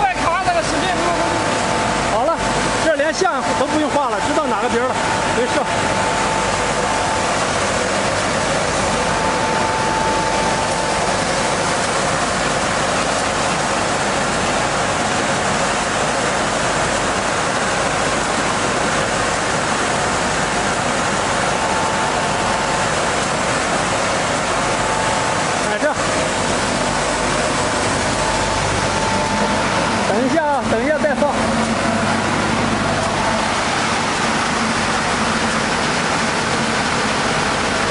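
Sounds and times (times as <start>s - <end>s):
faint machine whine: 0.0s - 37.9s
sanding machine running: 19.1s - 37.9s.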